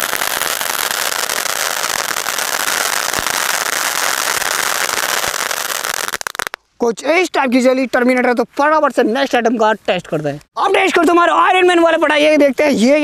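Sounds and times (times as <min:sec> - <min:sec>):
sparkler firework fizzing and crackling: 0:00.0 - 0:06.6.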